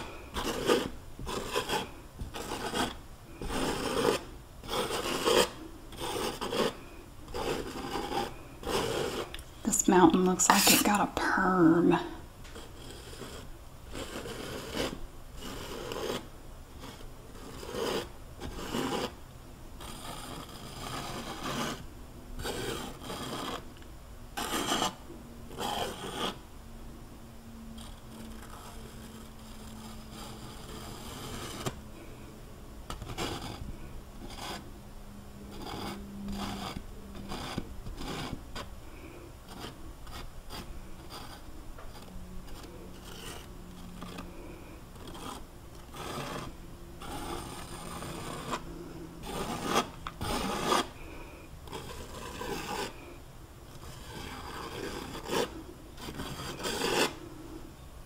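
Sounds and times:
painting knife scraping canvas: 0.0 - 19.2, 19.8 - 23.8, 24.4 - 26.4, 27.7 - 32.3, 32.9 - 34.7, 35.4 - 57.2.

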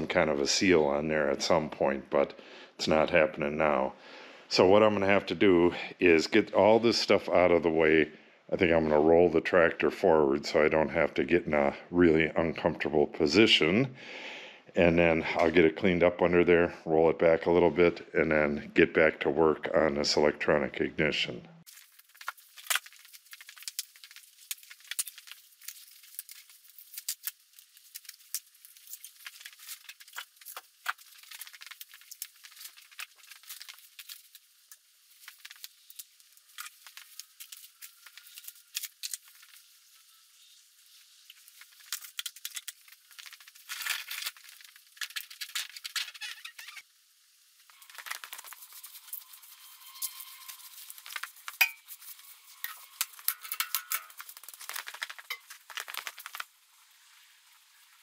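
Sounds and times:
tools clattering: 50.0 - 56.1.

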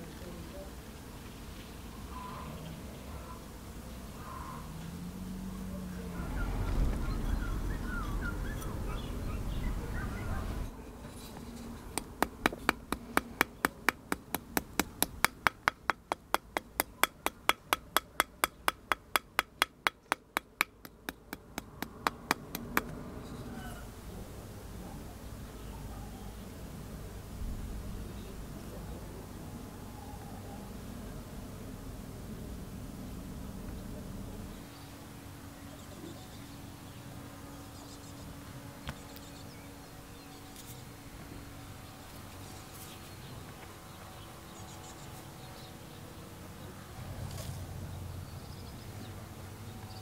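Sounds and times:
faint bird chirps: 1.9 - 3.4, 4.2 - 4.8, 6.2 - 10.7
wooden block tapping brass strip: 11.9 - 22.9.

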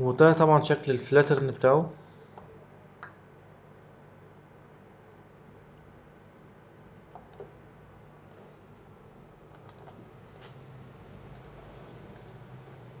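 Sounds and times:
low steady room hum: 0.0 - 13.0
computer mouse and keyboard clicks: 9.5 - 10.6, 11.3 - 12.5.

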